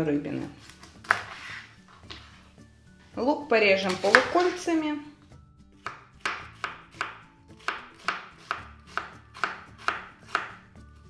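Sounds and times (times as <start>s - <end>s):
knife chopping onion on board: 1.0s - 1.5s, 3.9s - 4.6s, 5.8s - 10.7s.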